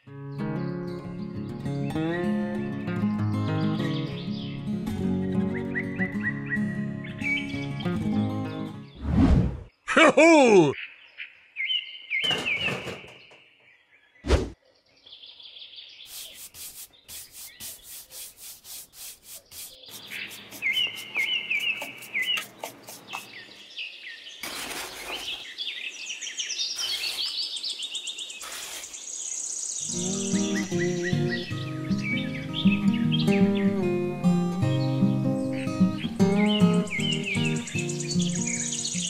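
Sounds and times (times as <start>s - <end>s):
birds chirping: 0.3s - 39.0s
brush scratching sand on plastic: 16.1s - 23.6s, 24.4s - 25.6s, 26.7s - 27.6s, 28.4s - 29.2s.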